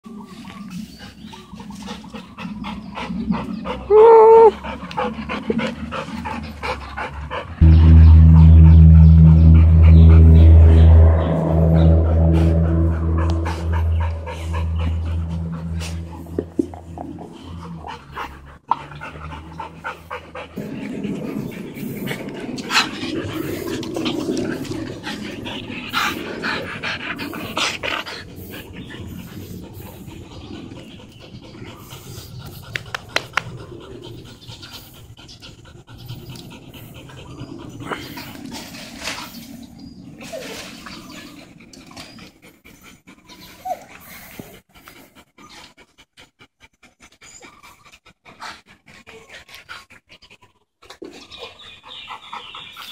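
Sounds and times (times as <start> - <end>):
dogs panting: 0.2 - 7.6, 14.5 - 52.9
dog whining: 3.9 - 4.5.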